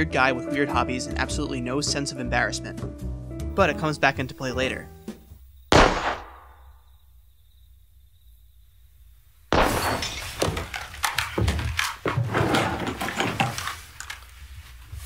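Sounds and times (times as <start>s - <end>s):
bottles bursting with loud pops: 5.7s - 6.6s, 9.5s - 12.0s.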